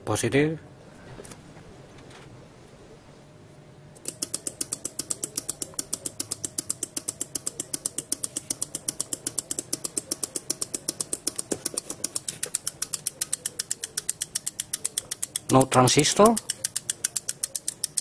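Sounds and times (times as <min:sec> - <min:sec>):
relays clicking rapidly: 0:04.0 - 0:18.0.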